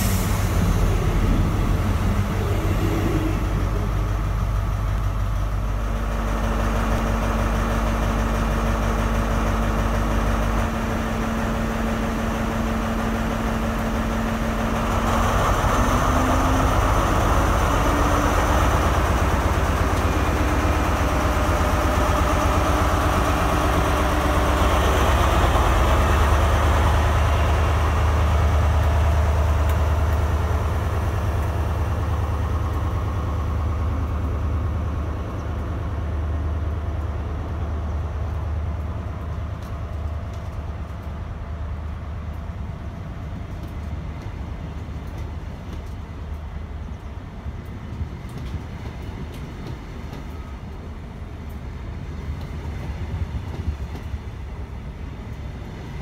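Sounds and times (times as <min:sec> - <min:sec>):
diesel engine powering up: 0:00.0 - 0:38.3
train coaches rolling past: 0:00.0 - 0:56.0.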